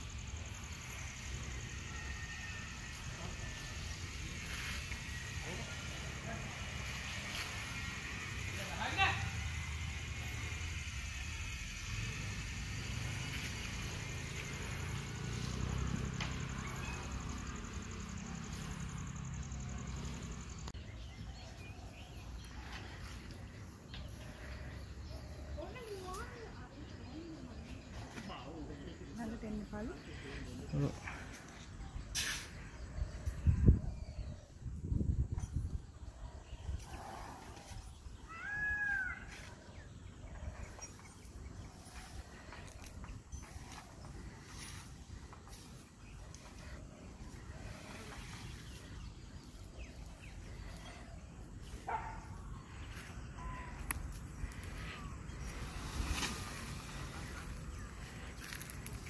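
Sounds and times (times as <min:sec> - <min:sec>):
birds chirping: 0:11.7 - 0:34.6, 0:35.4 - 0:59.0.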